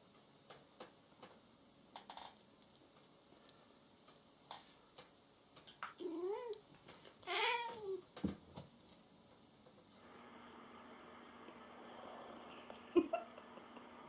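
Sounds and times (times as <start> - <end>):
cat meowing: 7.3 - 8.0.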